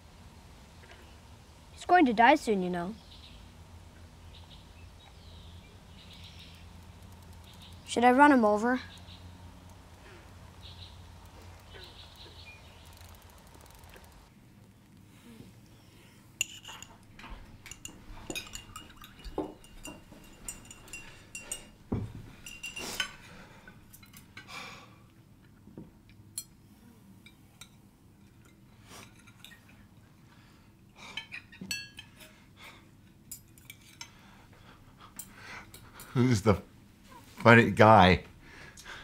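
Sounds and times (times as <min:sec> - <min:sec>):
cutlery clinking on plates: 0:16.4 - 0:23.3, 0:27.2 - 0:29.8, 0:31.1 - 0:32.4.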